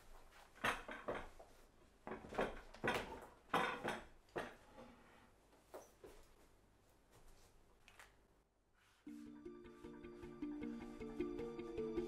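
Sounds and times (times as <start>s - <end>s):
easel frame knocking and rattling: 0.5s - 1.4s, 2.1s - 4.6s.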